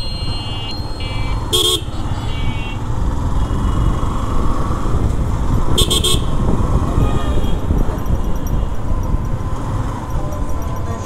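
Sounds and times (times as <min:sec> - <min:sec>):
horn toots: 0:00.0 - 0:04.2, 0:05.7 - 0:08.8
motorcycle engine and road rumble: 0:00.0 - 0:11.0.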